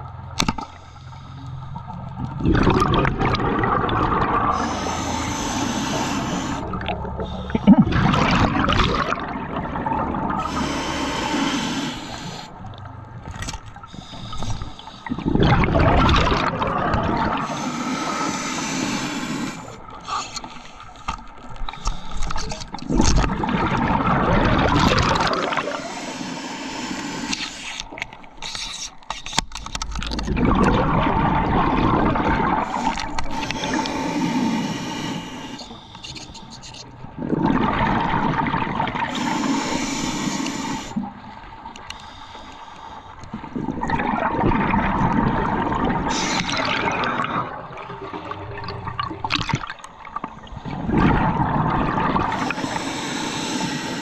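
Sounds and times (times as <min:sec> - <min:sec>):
exhaled air bubbling underwater: 0:00.0 - 0:28.6, 0:29.7 - 0:54.0
diver breathing through regulator: 0:00.7 - 0:01.9, 0:04.2 - 0:09.3, 0:10.1 - 0:12.6, 0:13.8 - 0:16.6, 0:17.2 - 0:23.1, 0:24.6 - 0:29.4, 0:32.6 - 0:37.0, 0:39.0 - 0:41.1, 0:41.8 - 0:43.8, 0:46.0 - 0:48.3, 0:52.2 - 0:54.0.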